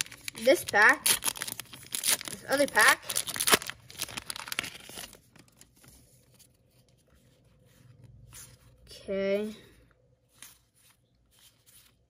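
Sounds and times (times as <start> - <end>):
wrapper tearing and crinkling: 0.0 - 5.6
faint rustles of cards: 0.0 - 12.0.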